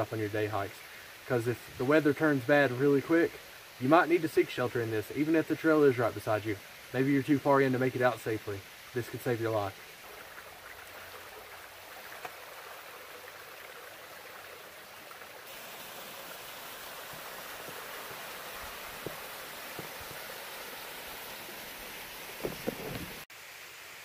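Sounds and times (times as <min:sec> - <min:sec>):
creek water rushing over rocks: 0:00.0 - 0:23.7
light knocks: 0:22.4 - 0:23.2.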